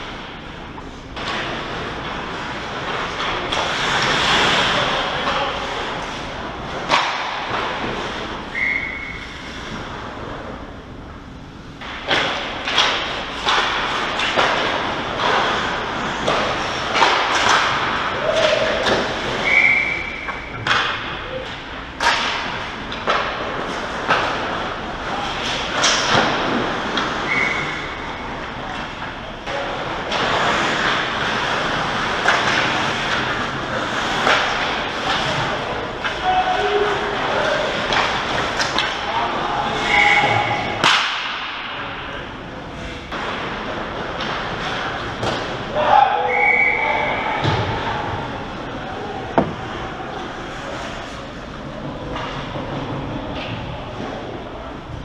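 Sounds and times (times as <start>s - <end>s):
hockey sticks and puck clacking: 0.0s - 10.6s, 11.8s - 42.1s, 42.8s - 54.4s
hockey sticks or puck knocking: 11.8s - 19.5s, 40.2s - 41.5s, 49.3s - 49.8s.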